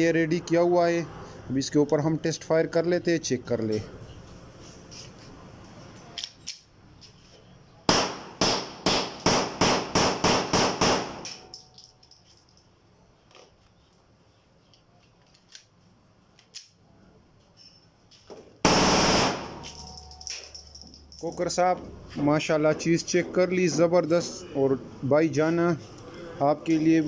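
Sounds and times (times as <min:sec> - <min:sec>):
automatic gunfire burst: 0:07.9 - 0:11.2, 0:18.6 - 0:19.6
pistol single shots: 0:18.7 - 0:19.6.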